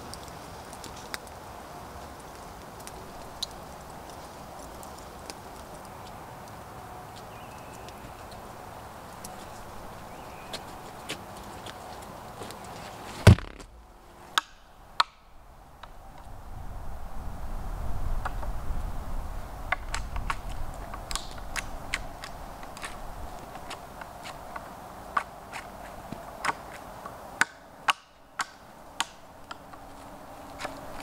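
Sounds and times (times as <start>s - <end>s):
sharp clicks and snaps: 19.8s - 23.0s.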